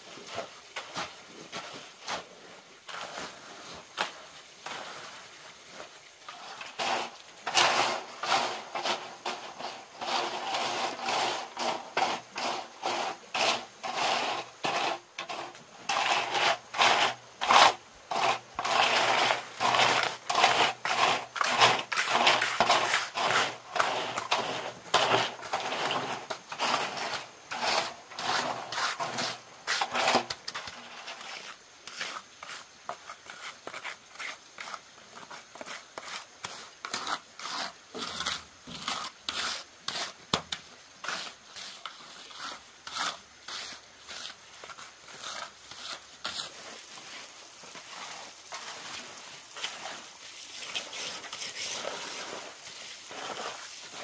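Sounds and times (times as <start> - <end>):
short scraping strokes: 6.3 - 32.6.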